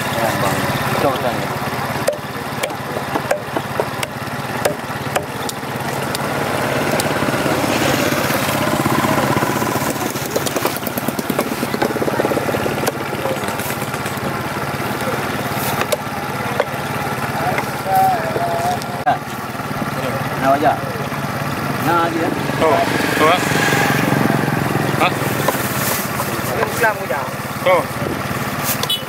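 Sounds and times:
small engine running: 0.0s - 29.0s
knife knocking on chopping block: 2.0s - 5.4s.

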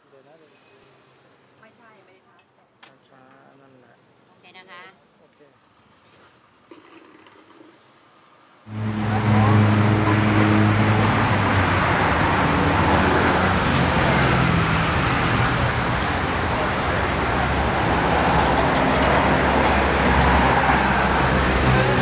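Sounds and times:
street traffic noise: 0.0s - 22.0s
engine humming close by: 8.7s - 22.0s.

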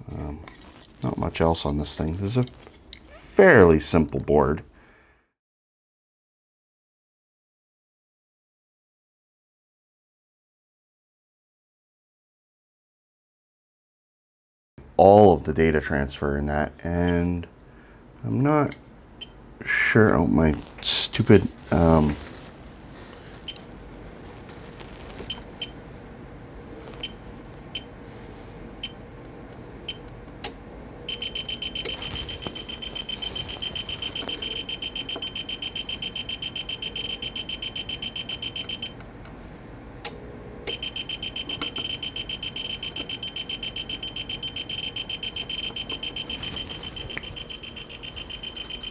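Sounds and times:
electronic beeper beeping fast: 31.1s - 38.9s, 40.8s - 48.9s.

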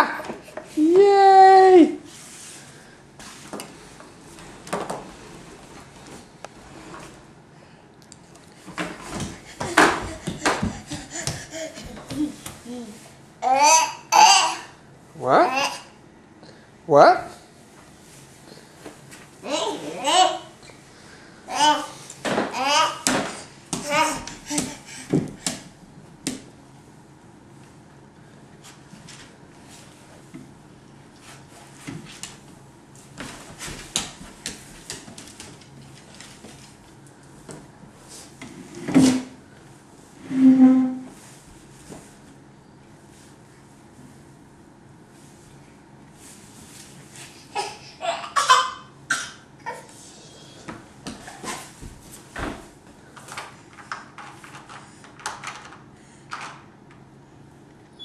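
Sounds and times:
baby crawling on wooden floor: 9.0s - 12.6s.

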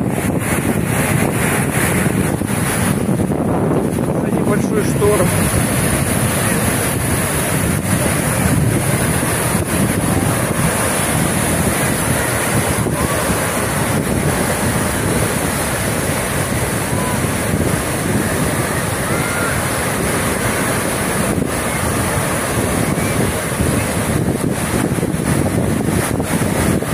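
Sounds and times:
surf breaking on shore: 0.0s - 26.9s
wind buffeting microphone: 0.0s - 26.9s.

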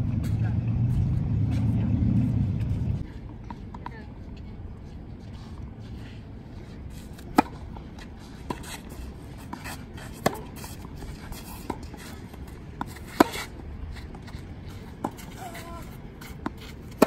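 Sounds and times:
tennis ball hitting racket: 6.9s - 17.0s
tennis ball bouncing on court: 7.3s - 17.0s.

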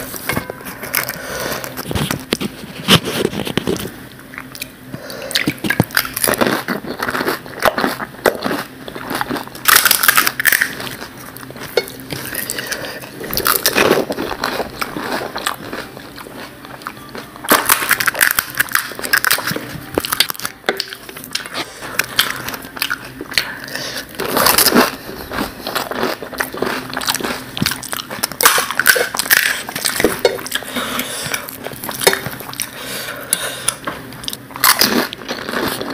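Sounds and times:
wet chewing: 0.9s - 35.9s
crisp shells crunching: 5.6s - 16.5s, 17.5s - 23.2s.

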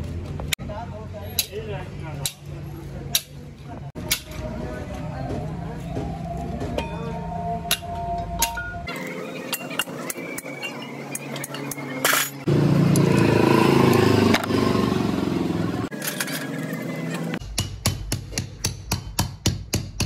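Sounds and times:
steel parts clinking: 7.7s - 12.5s, 15.9s - 16.8s
loud motor running: 12.1s - 17.4s.

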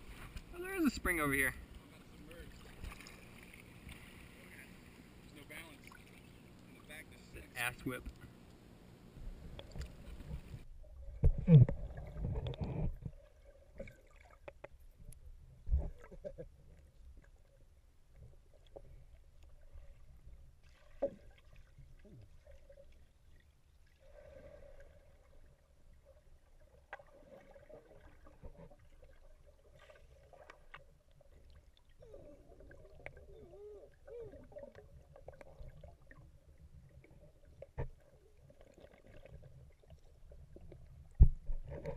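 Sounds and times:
faint underwater gurgles: 0.0s - 41.9s
low underwater rumble: 0.0s - 41.9s
splash and gurgle: 2.2s - 4.9s, 5.5s - 7.0s, 9.6s - 14.6s, 20.6s - 41.9s.

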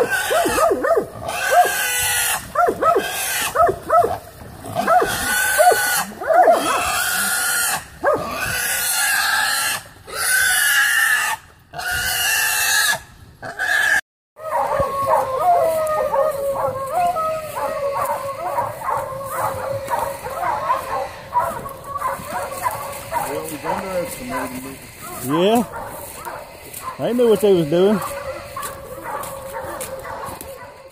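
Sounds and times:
hog squealing: 0.0s - 3.8s, 4.8s - 15.8s, 16.5s - 26.2s
dogs: 0.0s - 7.4s, 8.0s - 8.6s, 14.4s - 30.9s.

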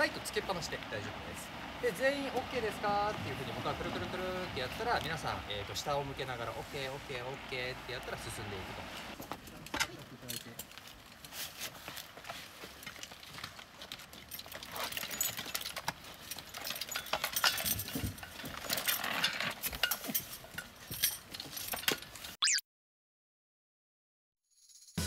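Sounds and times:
scuba gear clinking and rattling: 9.4s - 22.4s.

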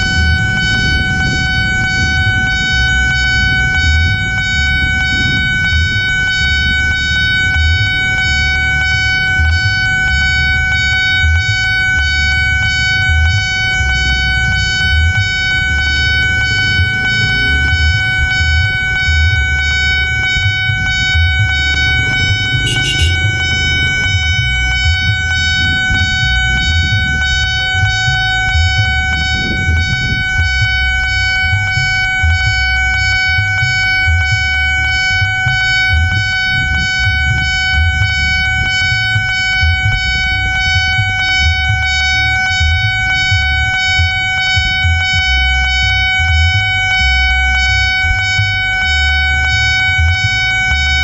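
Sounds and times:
low rumble: 0.0s - 50.8s
level crossing alarm bell: 0.0s - 51.0s.

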